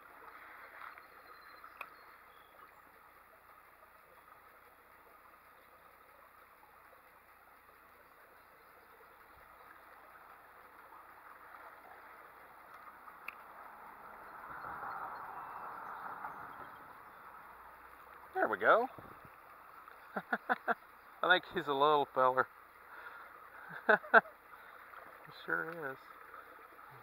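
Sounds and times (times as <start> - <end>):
creek water running: 0.0 - 27.0
faint clicks: 0.2 - 2.7, 12.6 - 13.6, 19.0 - 20.7, 24.8 - 26.6.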